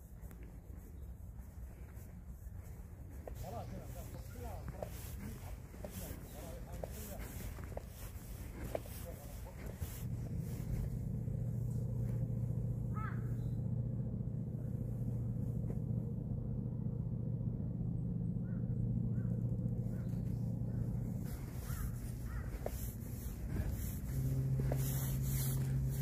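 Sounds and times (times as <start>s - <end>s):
low engine hum: 0.0s - 26.0s
short bird calls: 12.9s - 13.6s, 18.4s - 25.9s.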